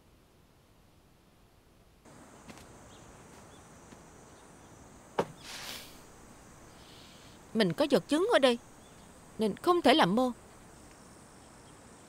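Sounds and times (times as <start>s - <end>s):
insect drone: 2.1s - 12.0s
short breathy hiss: 5.2s - 7.5s.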